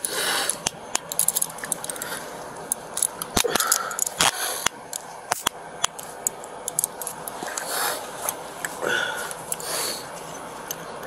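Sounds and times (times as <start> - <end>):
metallic clicks and jingles: 0.0 - 7.7.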